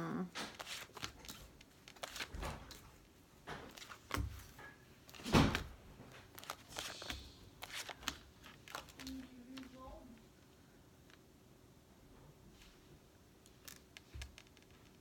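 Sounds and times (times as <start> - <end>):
cards tapping and rustling: 0.3 - 10.2, 13.4 - 15.0.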